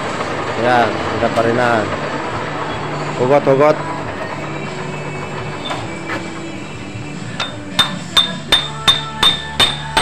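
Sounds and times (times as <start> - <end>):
motor hum: 0.0 - 9.3.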